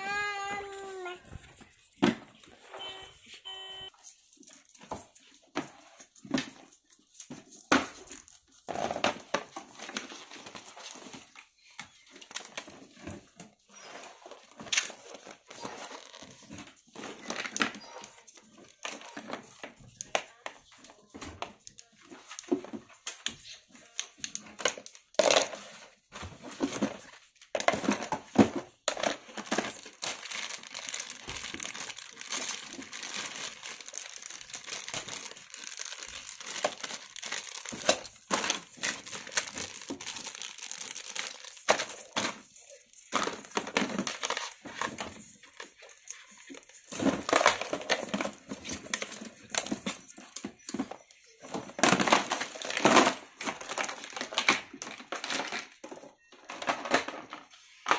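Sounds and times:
plastic packaging crinkling: 26.6 - 57.9.

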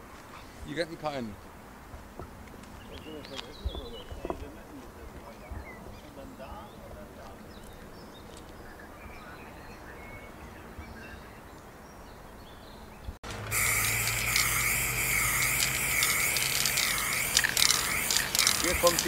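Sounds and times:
machine hum and whine: 13.3 - 19.0.

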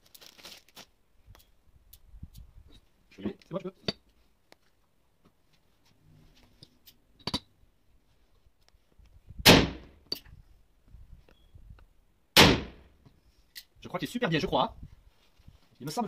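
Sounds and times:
gunshots with echoing tail: 9.4 - 9.9, 12.4 - 12.8
faint clicks of loading tools: 13.4 - 13.7.

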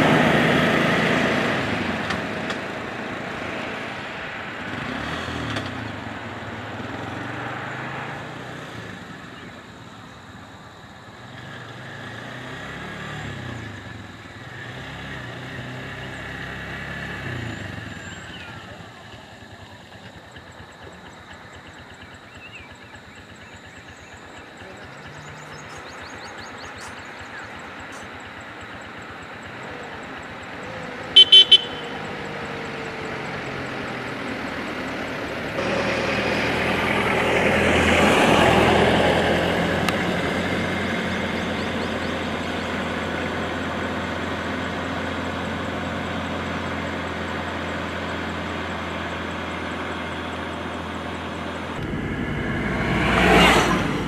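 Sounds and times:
vehicles driving past: 0.0 - 54.0
vehicle horn toots: 31.1 - 32.2.

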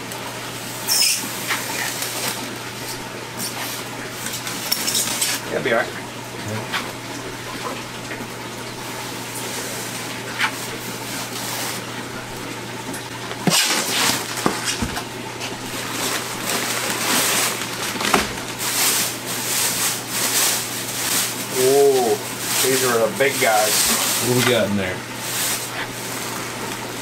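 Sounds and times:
running aquarium water: 0.0 - 27.0
styrofoam box crinkling: 0.8 - 5.5, 13.2 - 27.0
plastic liner rustling: 0.9 - 5.6, 9.4 - 12.3, 13.1 - 27.0.

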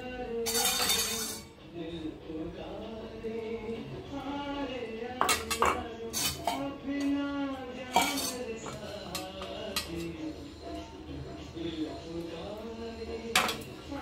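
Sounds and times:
song playing in background: 0.0 - 14.0
metal plates clinking: 0.4 - 1.5, 5.2 - 6.8, 7.9 - 10.2, 13.3 - 13.7.

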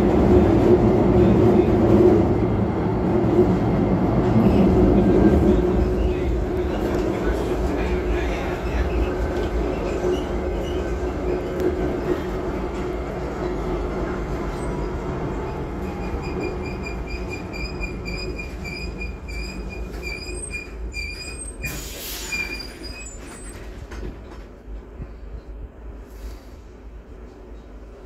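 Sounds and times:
tram running on rails: 0.0 - 28.0
tram wheels squealing: 3.8 - 13.2, 14.4 - 24.1.

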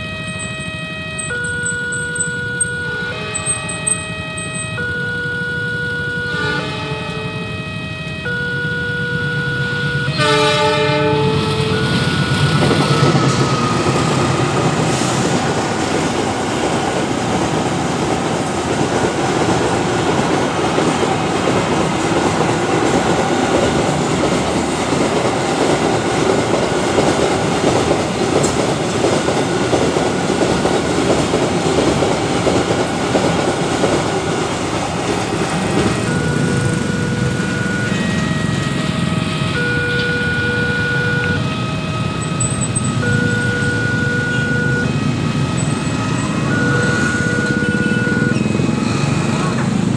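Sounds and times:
freight train rumbling past: 0.0 - 49.9
level crossing warning tones: 0.0 - 49.9
train horn: 2.6 - 13.4, 36.8 - 42.4, 43.0 - 48.4
wagons clacking over rail joints: 12.5 - 39.2.

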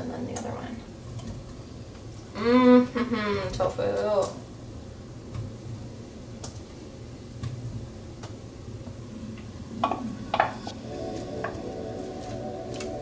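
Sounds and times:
steady held tone: 10.5 - 13.0.

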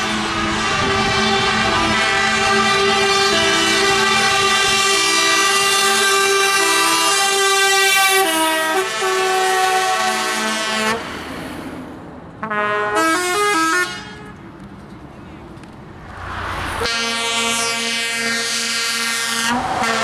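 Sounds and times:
musical air horn playing a tune: 0.0 - 11.0, 12.4 - 14.3, 16.8 - 20.0.

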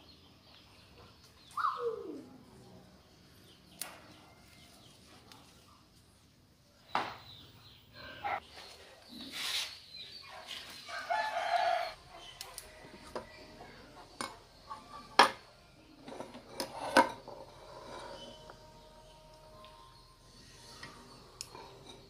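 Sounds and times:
rooster crowing: 10.9 - 12.0
tableware clinking on table: 14.2 - 18.8.

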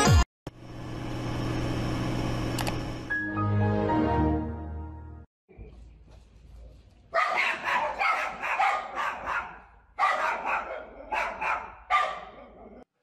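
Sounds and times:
dog barking: 7.1 - 12.9.

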